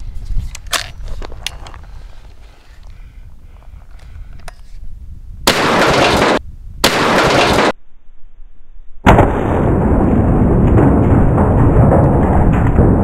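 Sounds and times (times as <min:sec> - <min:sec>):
shotgun shot: 0:05.5 - 0:07.8.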